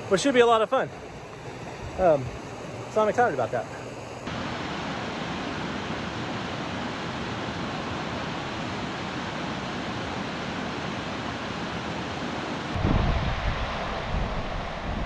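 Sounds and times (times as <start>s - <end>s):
river rapids rushing: 4.3s - 14.6s.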